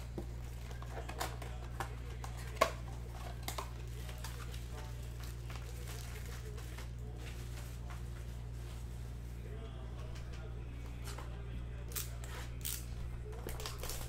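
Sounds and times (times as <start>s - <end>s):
steady low hum: 0.0s - 14.0s
foil wrappers crinkling: 0.3s - 9.3s, 11.9s - 14.0s.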